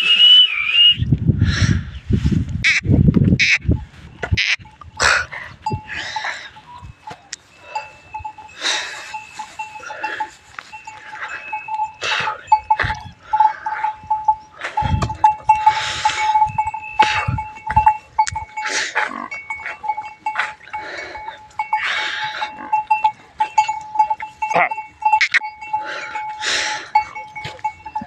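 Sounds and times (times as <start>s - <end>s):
footsteps on dry ground and brush: 2.2s - 5.8s, 6.6s - 13.1s, 14.6s - 22.6s, 27.2s - 28.0s
cattle bells ringing: 3.7s - 28.0s.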